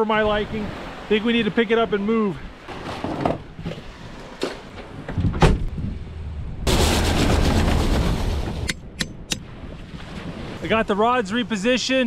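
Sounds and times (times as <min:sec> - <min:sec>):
truck driving over gravel: 0:06.7 - 0:08.7.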